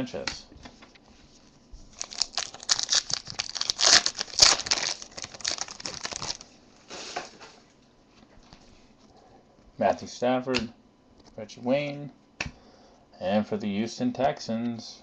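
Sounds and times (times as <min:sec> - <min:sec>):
foil wrapper crinkling and tearing: 0:01.9 - 0:06.5
wrapper rustle: 0:01.9 - 0:07.2.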